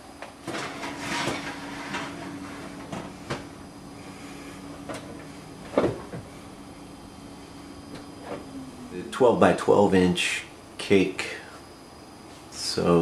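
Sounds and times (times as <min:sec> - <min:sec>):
steady oven hum: 0:00.0 - 0:13.0
pan scraping on oven rack: 0:00.5 - 0:03.4.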